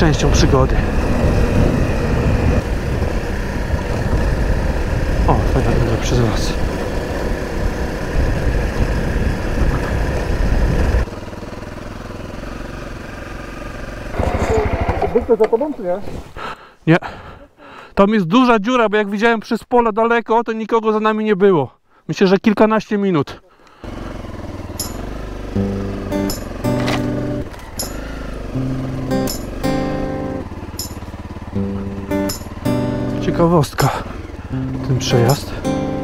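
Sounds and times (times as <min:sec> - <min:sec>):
wind noise: 0:00.0 - 0:11.1
motorcycle engine running: 0:00.0 - 0:15.8, 0:23.8 - 0:36.0
instrument notes over light beat: 0:24.8 - 0:28.0, 0:28.6 - 0:33.2.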